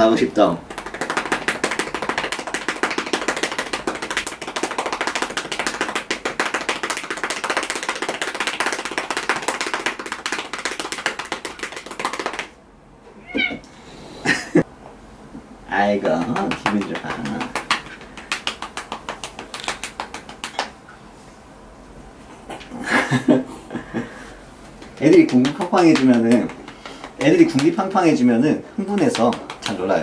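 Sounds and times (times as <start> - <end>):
cat meowing: 13.2 - 13.7
hand patting cat: 16.0 - 20.7, 28.9 - 29.9.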